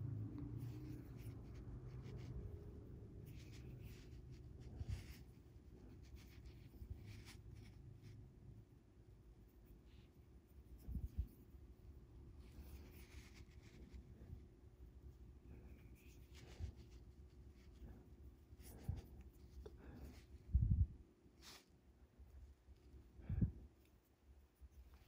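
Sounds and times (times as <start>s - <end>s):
low steady hum: 0.0s - 25.0s.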